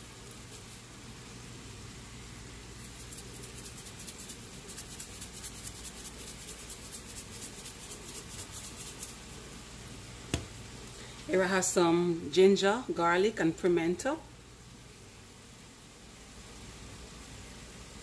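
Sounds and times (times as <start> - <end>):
spice shaker rattling: 0.0 - 1.0, 2.7 - 9.5.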